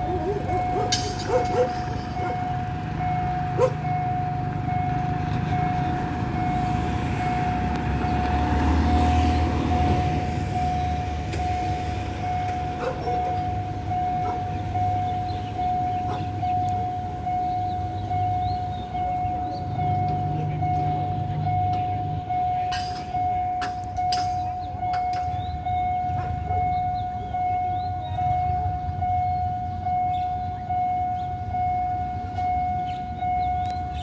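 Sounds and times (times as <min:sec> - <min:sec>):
vehicle passing: 0:00.0 - 0:16.3
level crossing warning bell: 0:00.0 - 0:34.0
road traffic rumble: 0:00.0 - 0:34.0.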